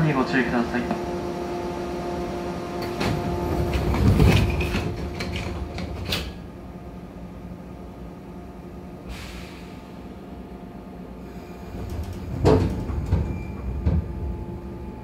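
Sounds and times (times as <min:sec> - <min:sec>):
train car hum: 0:00.0 - 0:15.0
train doors sliding shut: 0:00.8 - 0:06.6, 0:09.0 - 0:10.0, 0:11.2 - 0:15.0
brief air hiss: 0:09.0 - 0:10.0.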